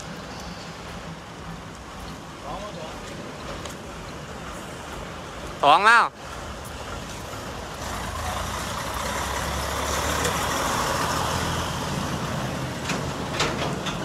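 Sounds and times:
tyres rolling noise: 0.0s - 14.0s.

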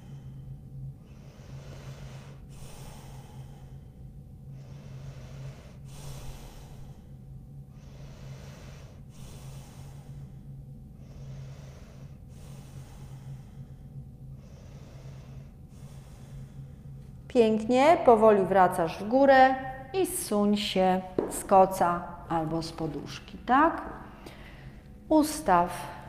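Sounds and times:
woman breathing deeply: 0.0s - 17.3s, 23.8s - 25.1s
steady low hum: 0.0s - 26.0s.

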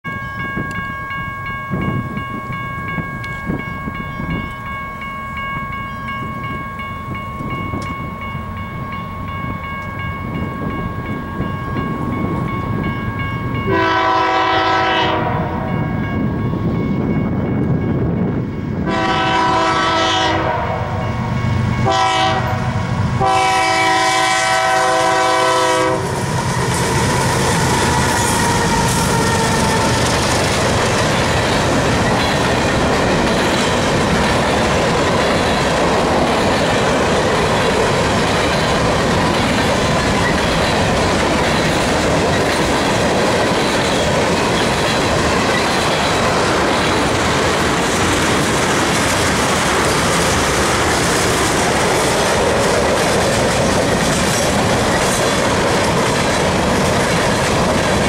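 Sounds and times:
crossing bell ringing: 0.0s - 58.0s
diesel locomotives passing: 0.0s - 58.0s
freight cars rumbling on rails: 0.0s - 58.0s
locomotive air horn: 13.7s - 15.8s, 18.8s - 21.0s, 21.8s - 26.7s.

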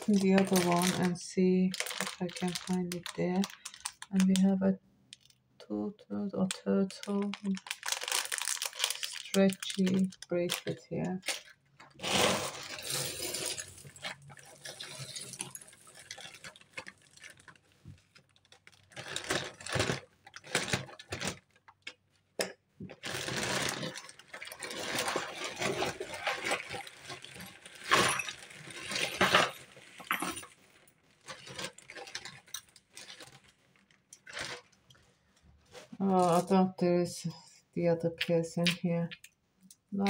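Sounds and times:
plastic bag rustling: 0.0s - 4.4s, 6.5s - 21.6s, 22.8s - 36.5s
jewellery clattering on table: 27.8s - 30.6s.

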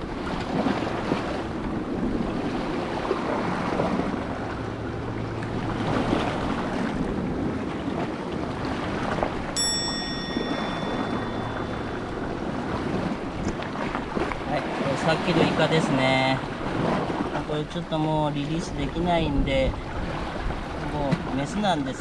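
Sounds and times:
surf on the shore: 0.0s - 22.0s
high steady tone: 9.6s - 13.6s.

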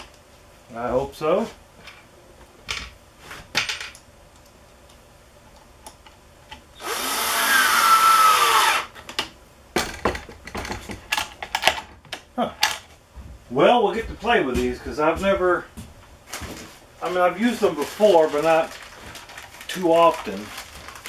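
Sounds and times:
cordless drill driving screw: 6.8s - 8.9s
clicks and knocks of handling: 9.0s - 13.0s.

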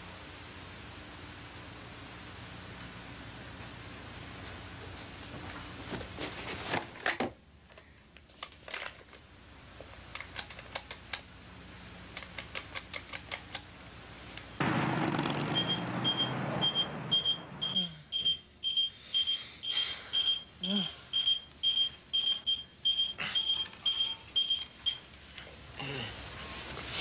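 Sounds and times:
high electronic beeping: 15.6s - 25.0s.

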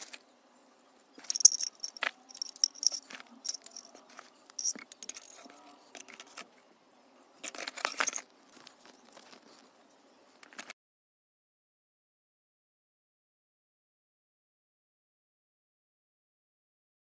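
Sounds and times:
plastic parts clicking and knocking: 1.2s - 6.5s.

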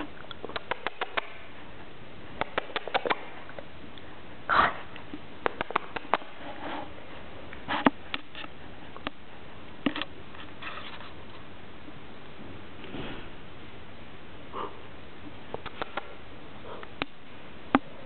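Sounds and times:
sharp clicks: 2.4s - 3.2s.

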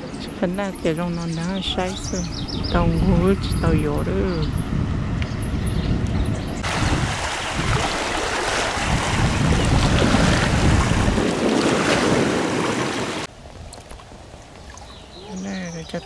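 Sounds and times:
wind buffeting microphone: 0.0s - 16.0s.

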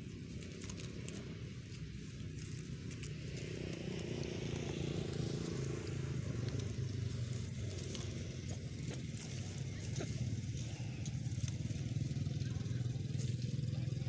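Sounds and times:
dry leaves crackling: 0.0s - 14.0s
engine running: 0.0s - 14.0s.

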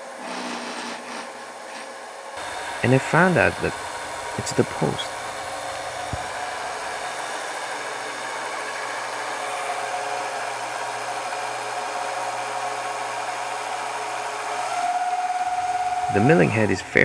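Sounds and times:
milling machine motor whirring: 2.4s - 16.6s.

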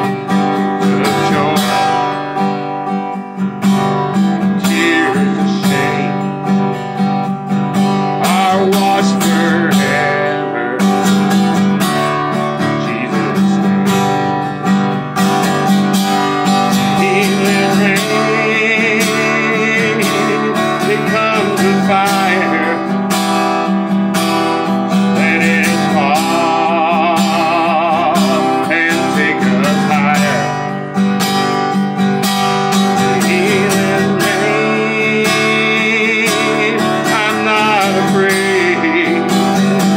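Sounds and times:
man singing with vibrato: 0.0s - 14.5s, 15.4s - 31.2s, 32.3s - 39.9s
strummed acoustic guitar: 0.0s - 39.9s.

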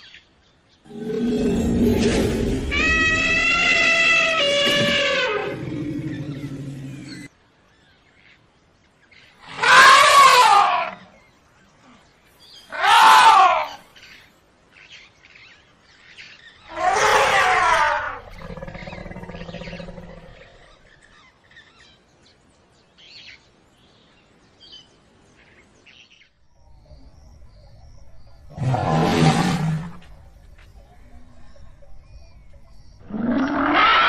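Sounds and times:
elephant trumpeting: 0.9s - 7.2s, 9.5s - 11.0s, 12.7s - 13.8s, 16.7s - 20.2s, 33.1s - 34.0s
elephant rumbling call: 0.9s - 7.3s, 16.7s - 20.9s, 28.2s - 34.0s.

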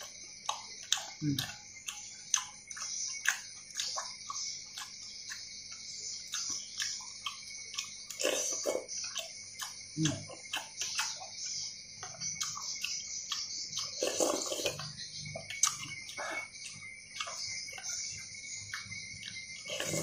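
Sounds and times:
wet chewing and lip smacks: 0.0s - 20.0s
slurping broth: 14.0s - 14.8s, 19.6s - 20.0s.

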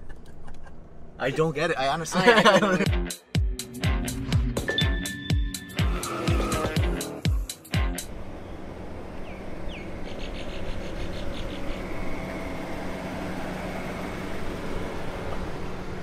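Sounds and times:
faint bird chirps: 9.2s - 12.1s.

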